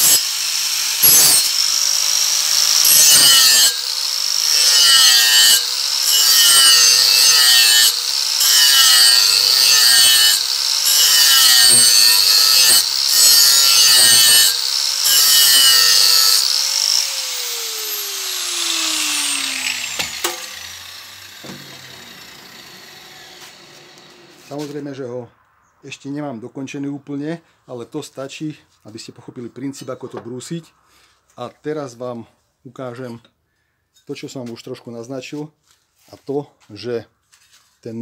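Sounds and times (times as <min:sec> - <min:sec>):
grinder winding down whine: 0:00.0 - 0:24.9
angle grinder grinding steel: 0:00.0 - 0:25.0.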